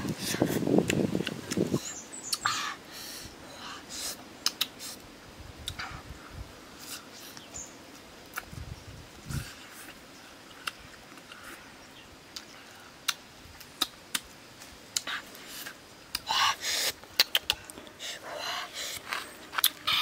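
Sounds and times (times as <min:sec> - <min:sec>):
chewing and lip-smacking: 0:17.1 - 0:17.8.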